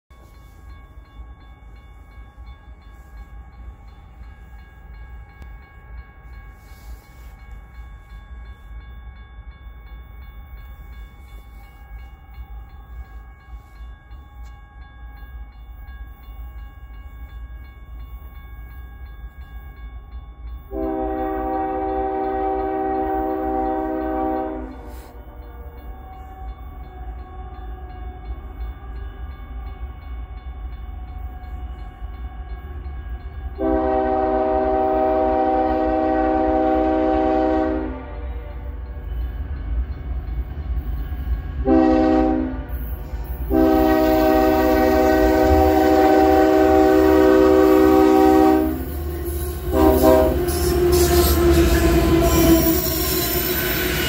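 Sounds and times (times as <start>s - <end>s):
faint steady tones: 0.1s - 54.0s
locomotive air horn blast: 20.7s - 25.2s, 33.6s - 38.6s, 41.6s - 42.8s, 43.5s - 53.2s.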